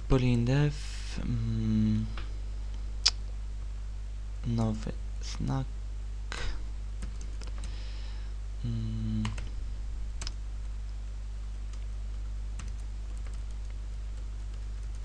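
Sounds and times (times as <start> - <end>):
low electrical hum: 0.0 - 15.0
person humming: 1.1 - 2.2, 8.6 - 9.6.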